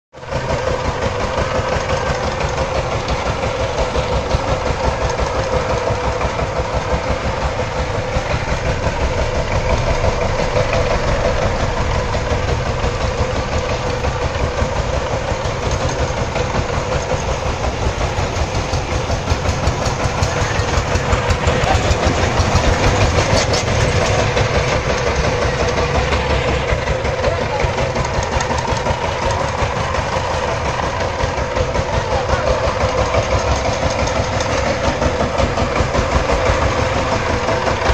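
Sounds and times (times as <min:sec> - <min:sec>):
diesel engine chugging: 0:00.1 - 0:37.9.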